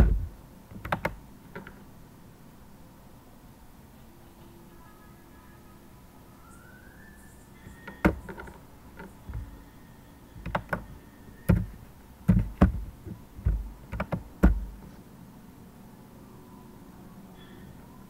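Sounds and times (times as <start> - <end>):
dull thuds: 0.0 - 1.8, 7.9 - 8.6, 9.2 - 9.6, 10.4 - 15.0
sharp clicks and knocks: 0.0 - 1.8, 7.8 - 9.6, 10.4 - 14.9.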